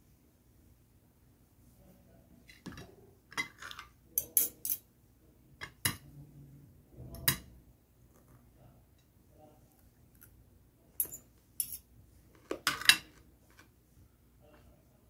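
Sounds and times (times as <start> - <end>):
cutlery clinking on a plate: 11.0 - 11.8.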